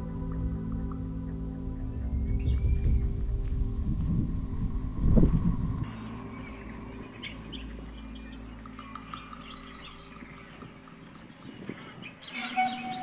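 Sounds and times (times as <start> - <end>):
low steady hum: 0.0 - 13.0
music: 0.0 - 13.0
small birds chirping: 0.7 - 3.8, 5.7 - 13.0.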